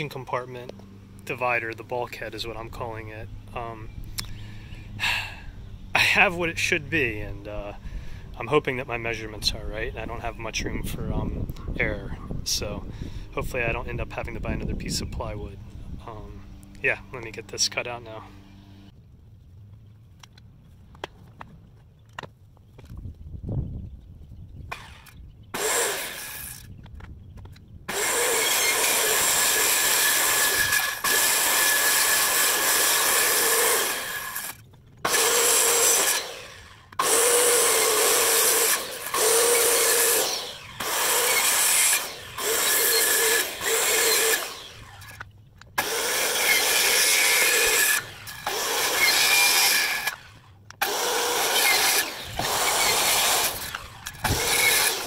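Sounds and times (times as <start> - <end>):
circular saw cutting plywood: 24.7 - 26.8, 27.9 - 55.0.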